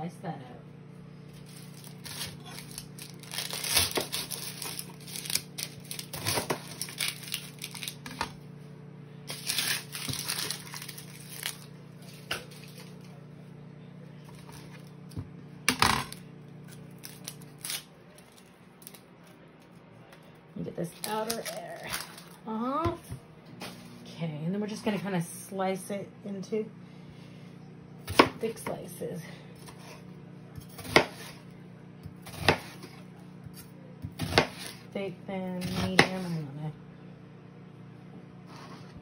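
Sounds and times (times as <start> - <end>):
steady low hum: 0.0 - 39.0
onion skin rustling: 1.3 - 8.4, 9.3 - 13.1.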